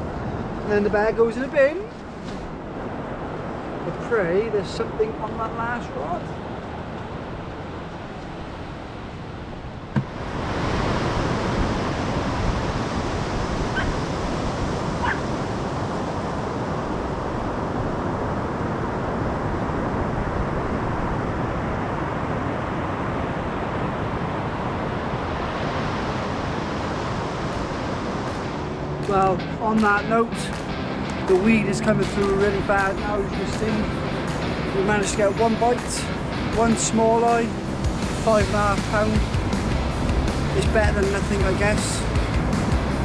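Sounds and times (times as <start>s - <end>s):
surf breaking on beach: 0.1s - 43.0s
wind on microphone: 6.2s - 29.0s.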